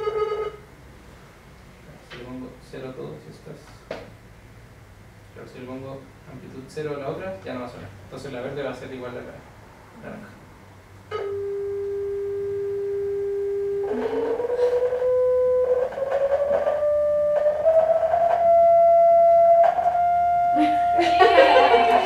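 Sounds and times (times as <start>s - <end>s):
sine tone through speakers: 11.1s - 22.0s.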